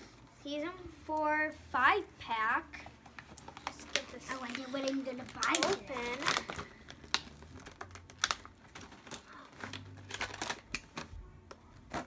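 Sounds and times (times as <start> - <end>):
plastic blister packaging crackling: 3.0 - 12.0.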